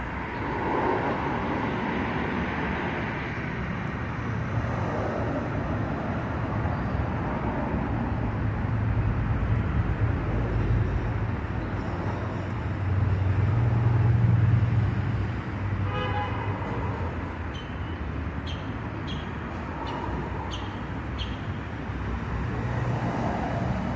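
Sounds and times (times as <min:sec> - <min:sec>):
road traffic rumble: 0:00.0 - 0:23.9
vehicle passing: 0:19.6 - 0:23.9.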